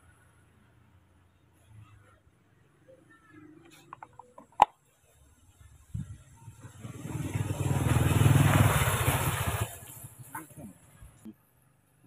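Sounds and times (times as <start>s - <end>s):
motor vehicle passing by: 6.0s - 11.2s.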